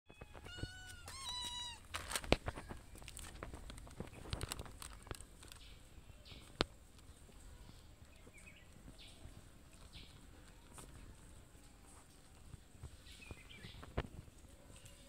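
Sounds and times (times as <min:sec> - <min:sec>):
cat meowing: 0:00.1 - 0:01.9
cats eating and licking: 0:00.1 - 0:15.0
plastic pouch crinkling: 0:00.2 - 0:07.1.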